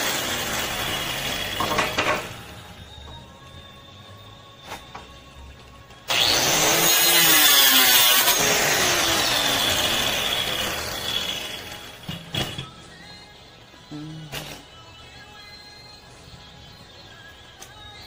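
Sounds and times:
electric saw cutting wood: 0:00.0 - 0:02.5, 0:06.1 - 0:12.1.

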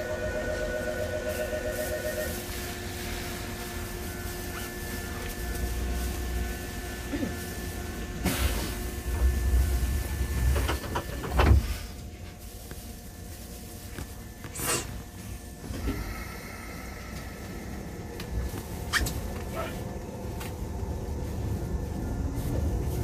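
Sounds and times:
train interior hum: 0:00.0 - 0:23.0
train knocks and clunks: 0:10.0 - 0:11.8.

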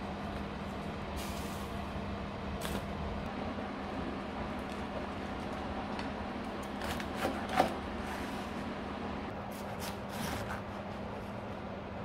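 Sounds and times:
knife slicing cabbage: 0:06.6 - 0:07.8, 0:09.5 - 0:11.1.

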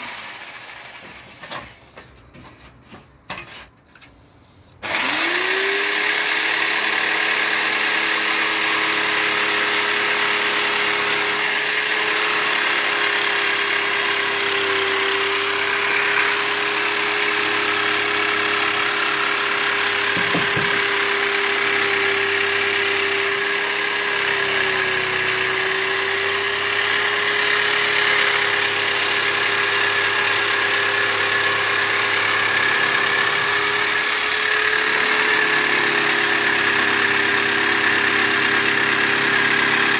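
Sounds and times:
jigsaw cutting wood: 0:00.0 - 0:02.0, 0:04.8 - 0:39.9.

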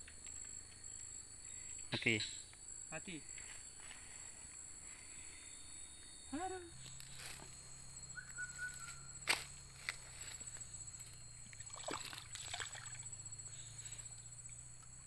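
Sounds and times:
night insects chirring: 0:00.0 - 0:15.0
thin whistle: 0:07.4 - 0:09.2
fish splashing in water: 0:11.6 - 0:13.0.

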